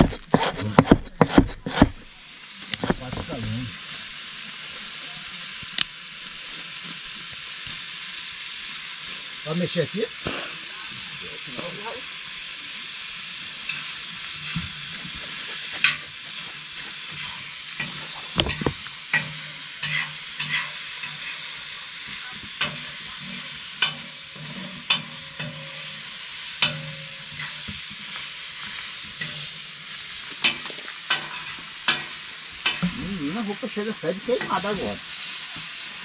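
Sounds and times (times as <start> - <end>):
food sizzling in a hot pan: 0.0 - 36.0.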